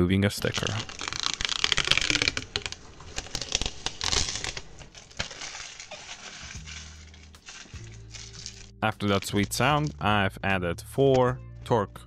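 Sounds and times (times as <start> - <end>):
plastic film peeling off: 0.4 - 10.0.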